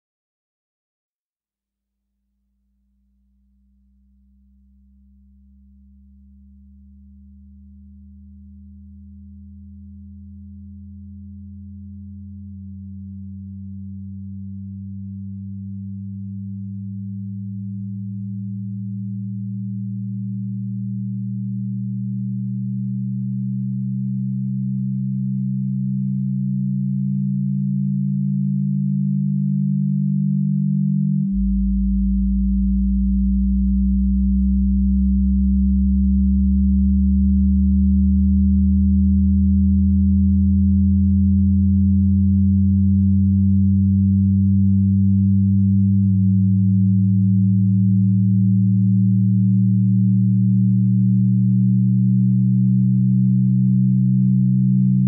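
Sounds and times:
low electronic drone: 30.0s - 55.0s.

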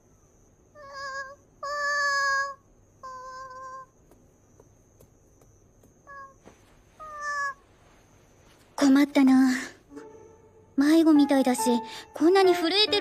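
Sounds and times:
cat meowing: 0.8s - 3.9s, 6.1s - 6.4s, 7.0s - 7.6s.

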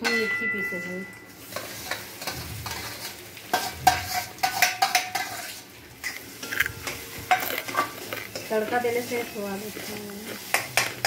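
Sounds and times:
pan ringing: 0.0s - 1.4s
light sizzle of frying: 0.0s - 11.0s
steel spatula scraping a pan: 0.0s - 11.0s.

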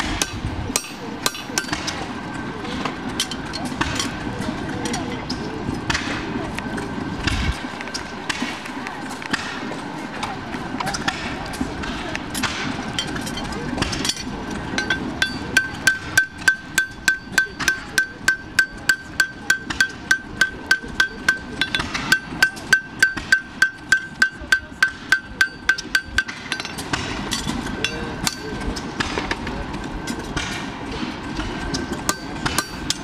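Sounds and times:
hammer striking horseshoe on anvil: 0.2s - 2.0s, 12.4s - 29.4s, 31.4s - 33.0s.

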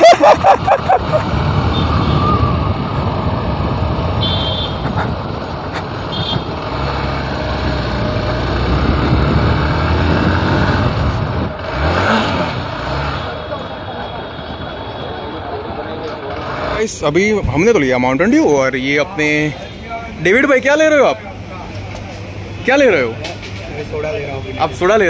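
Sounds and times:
other motorbikes: 0.0s - 25.0s
motorcycle engine: 0.4s - 17.3s.

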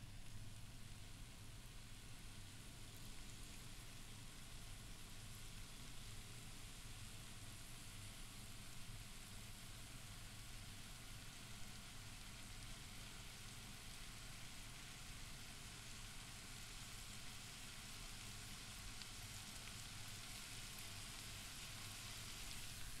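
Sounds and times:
low steady hum: 0.0s - 4.1s
onions sizzling in frying pan: 0.0s - 23.0s.

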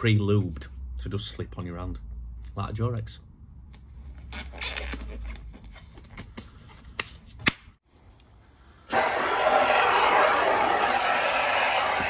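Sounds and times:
rubber glove snaps: 7.4s - 7.8s.

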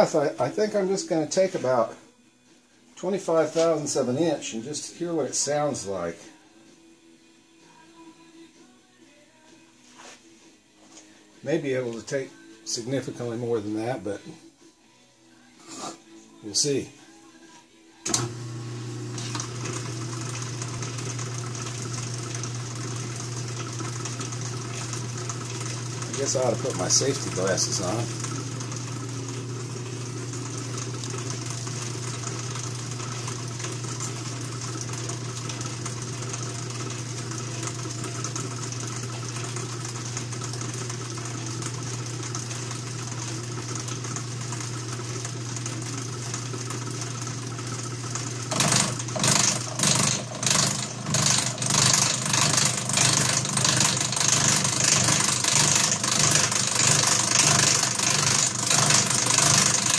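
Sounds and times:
milling machine humming: 18.0s - 59.9s.

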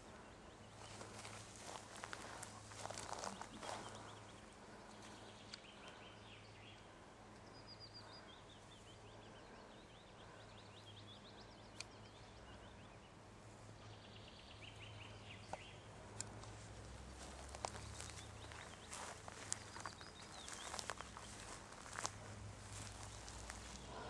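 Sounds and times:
songbird trills and chirps: 0.0s - 16.4s, 17.1s - 24.0s
low steady hum: 0.0s - 24.0s.

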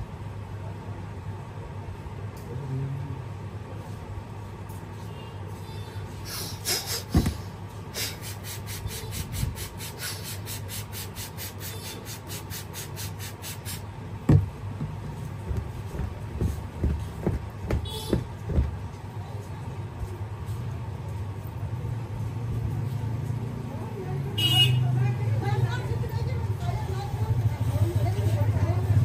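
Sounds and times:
low thump: 14.3s - 18.8s.

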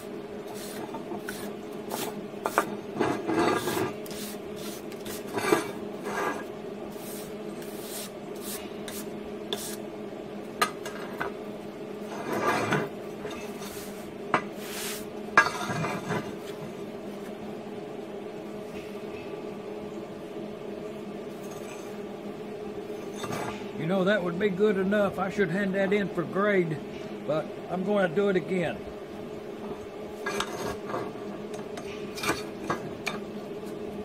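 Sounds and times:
wire brush scraping metal: 0.0s - 9.8s
steady low hum: 0.0s - 34.0s.

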